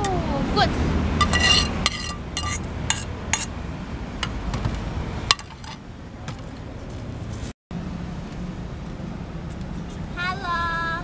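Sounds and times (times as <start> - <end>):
frying pan clinking against dishes: 1.2 - 3.1.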